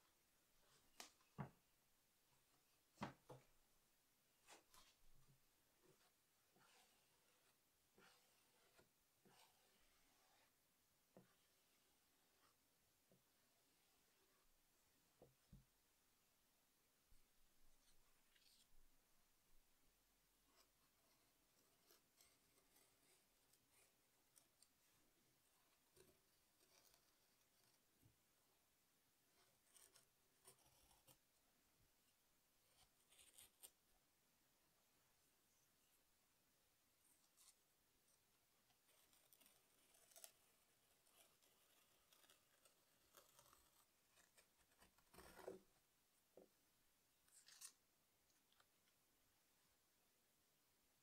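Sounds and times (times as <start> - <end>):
needle tool scratching clay: 5.8 - 12.7, 20.5 - 24.8, 25.6 - 28.0, 29.3 - 31.4, 32.6 - 33.8, 37.2 - 45.9, 47.3 - 47.8
knife scraping clay: 25.7 - 27.9, 38.6 - 45.8, 47.3 - 47.8.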